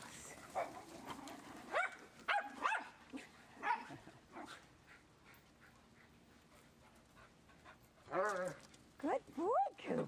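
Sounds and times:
dog yelping barks: 1.7s - 3.0s.

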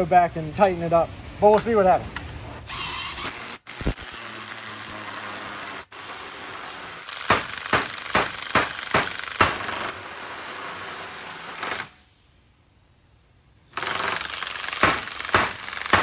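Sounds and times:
power tool hammering: 3.2s - 11.9s, 13.8s - 16.0s.

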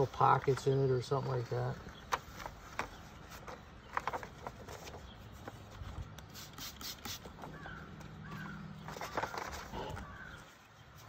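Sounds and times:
paper backing rustling and crinkling: 0.0s - 6.1s, 7.3s - 11.0s
spray bottle squirts: 6.2s - 7.4s.

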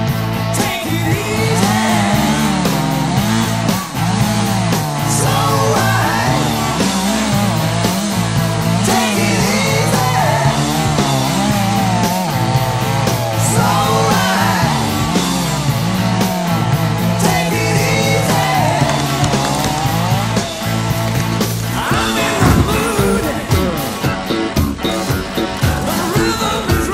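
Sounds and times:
rock song with singing and guitar: 0.0s - 26.9s.

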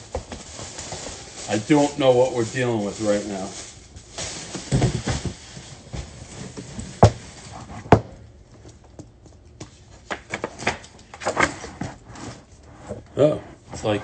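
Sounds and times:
plastic wrapping rustling: 0.0s - 7.8s.

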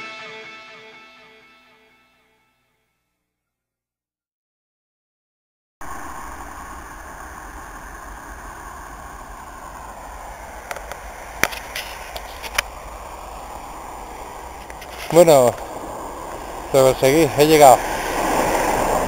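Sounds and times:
road traffic: 5.8s - 19.0s.

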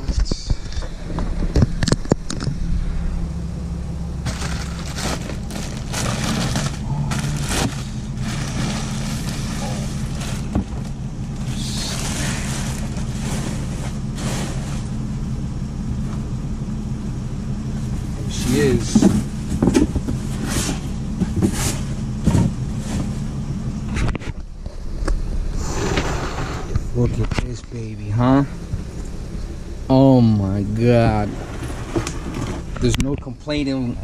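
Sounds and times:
steady low hum: 0.0s - 34.0s
plastic bag rustling and crinkling: 4.2s - 14.9s.

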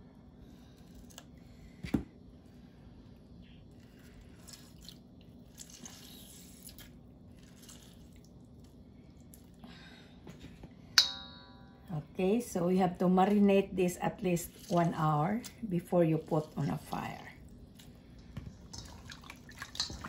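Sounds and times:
wet squishing of lemons squeezed: 3.6s - 9.6s, 14.3s - 20.0s.

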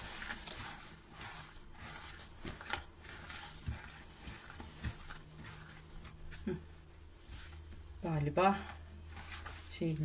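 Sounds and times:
hands kneading wet dough: 0.0s - 7.9s.

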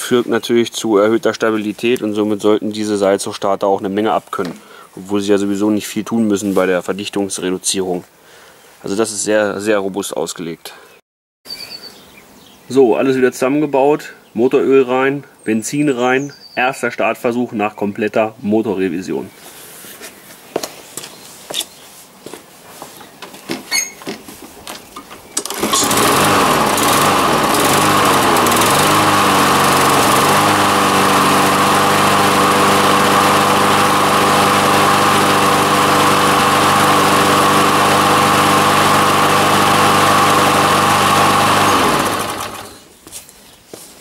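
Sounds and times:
lawn mower engine running: 25.4s - 42.9s.

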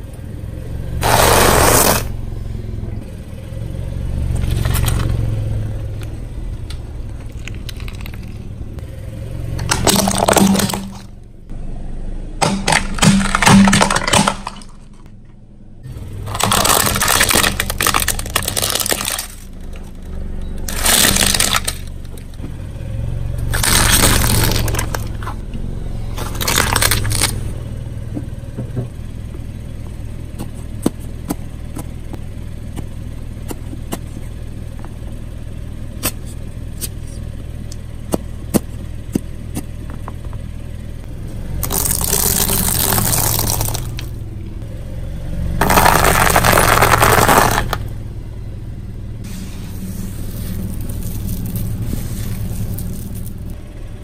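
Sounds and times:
car idling: 0.0s - 54.0s
tyre crushing objects: 1.0s - 2.1s, 9.6s - 11.1s, 12.4s - 14.9s, 16.2s - 19.6s, 20.7s - 21.9s, 23.5s - 25.3s, 26.2s - 27.4s, 41.6s - 44.1s, 45.6s - 47.9s, 49.7s - 53.6s.

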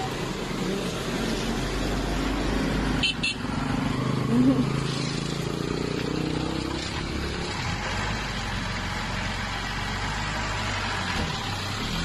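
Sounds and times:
truck engine hum: 0.0s - 12.0s
tyres hissing on wet road: 0.0s - 12.0s.

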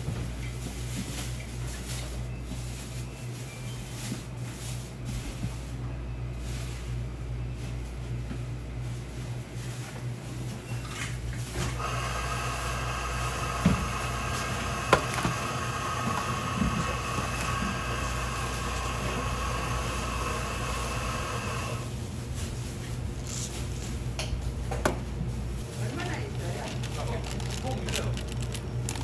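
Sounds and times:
electric motor whining: 11.8s - 21.9s.

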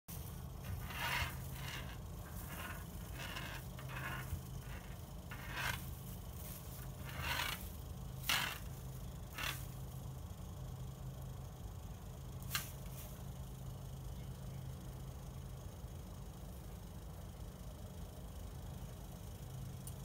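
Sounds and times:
steady low hum: 0.1s - 20.0s
scratchy scrapes on glass: 0.6s - 8.7s, 9.3s - 9.7s.

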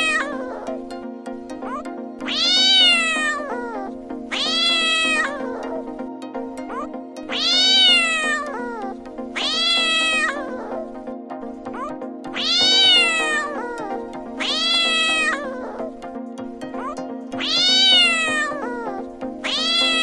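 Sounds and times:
cat meowing: 0.0s - 0.6s, 1.7s - 5.7s, 6.7s - 10.7s, 11.8s - 15.8s, 16.8s - 20.0s.

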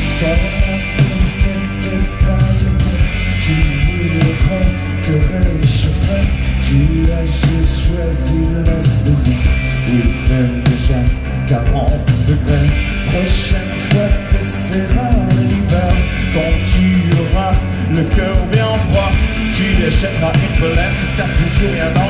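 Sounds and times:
live rock band playing: 0.0s - 22.0s
man singing into a microphone: 0.0s - 22.0s.

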